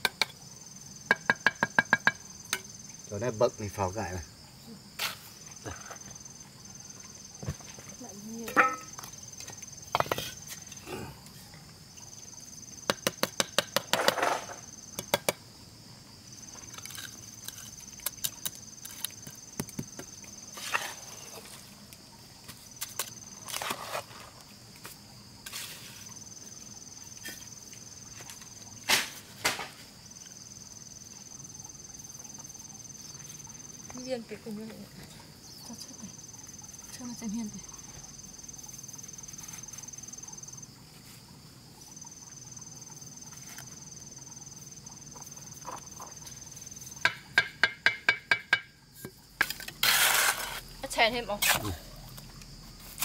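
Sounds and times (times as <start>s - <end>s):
insects trilling: 0.0s - 53.0s
sharp knocks and taps: 1.1s - 2.6s, 47.0s - 49.2s.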